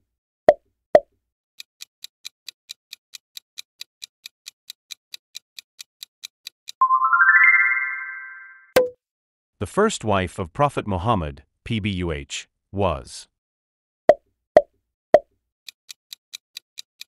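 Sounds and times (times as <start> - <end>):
clock-like countdown ticking: 1.0 - 6.8, 15.2 - 17.0
rising stepped chime: 6.8 - 8.7.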